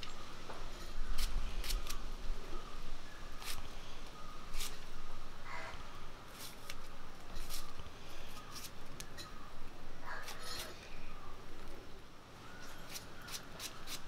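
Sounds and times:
knife slicing shallots: 12.9s - 14.0s.

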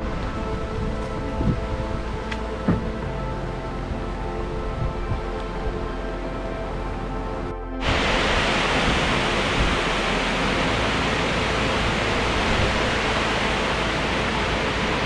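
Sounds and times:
water rushing over a weir: 7.8s - 15.0s.

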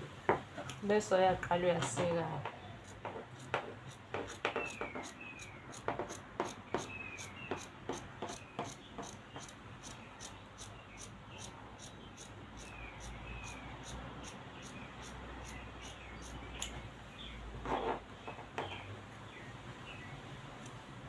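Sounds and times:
scissors snipping fabric: 2.8s - 6.9s.

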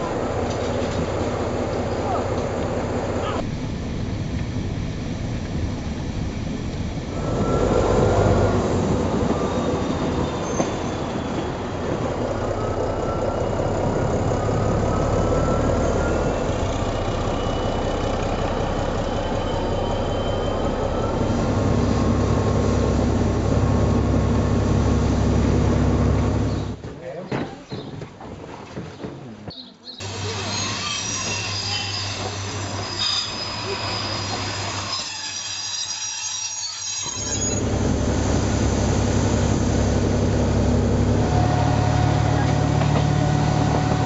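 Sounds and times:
train rumbling on rails: 0.0s - 26.8s, 30.0s - 36.0s, 36.8s - 44.0s
wheel squeal: 7.2s - 22.3s, 30.0s - 37.7s.

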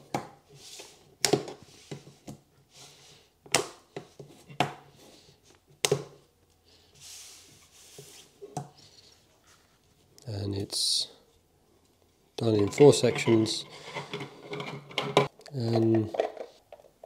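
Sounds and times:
soft sliding rustle: 6.8s - 8.4s.

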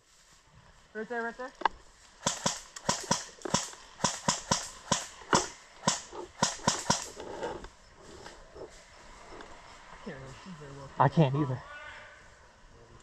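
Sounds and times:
airsoft rifle shots: 2.2s - 7.2s.

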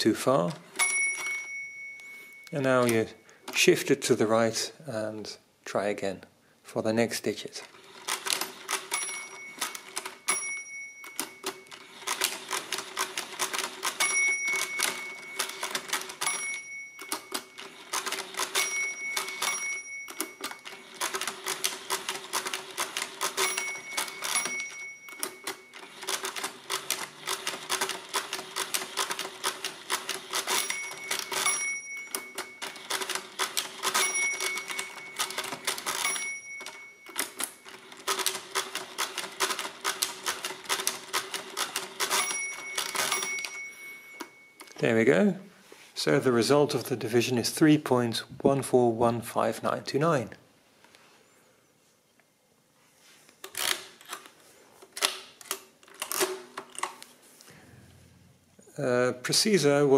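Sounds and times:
calculator bell ringing: 0.6s - 3.7s, 7.7s - 45.0s
mechanical calculator gears clattering: 7.6s - 44.8s, 53.4s - 54.3s, 55.0s - 57.0s.

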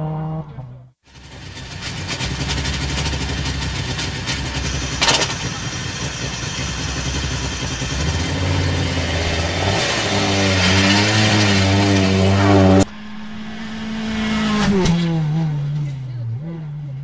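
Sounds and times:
rally car engine running: 1.1s - 17.0s
sharp bang: 12.3s - 16.1s.

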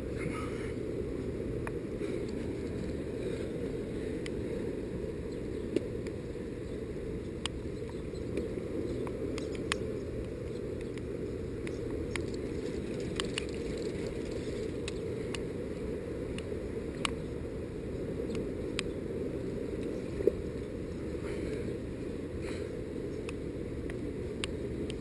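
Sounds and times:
small sharp clicks: 7.4s - 15.5s, 16.3s - 17.2s.

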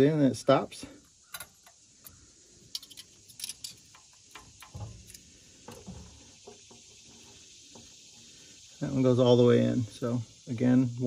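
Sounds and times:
light metallic clicks and taps: 1.0s - 5.9s.

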